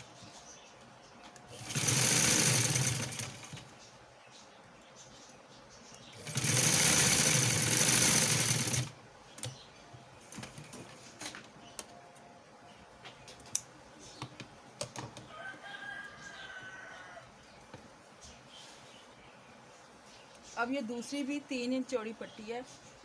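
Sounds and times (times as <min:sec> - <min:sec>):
sewing machine running: 0:01.5 - 0:03.6, 0:06.2 - 0:08.9.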